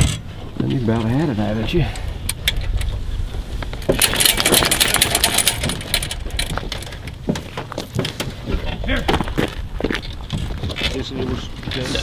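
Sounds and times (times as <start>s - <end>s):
chains clinking on metal box: 3.9s - 6.8s.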